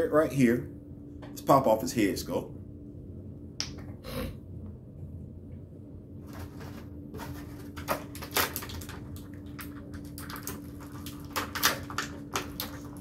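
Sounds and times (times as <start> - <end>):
plastic packaging crinkling: 6.3 - 13.0.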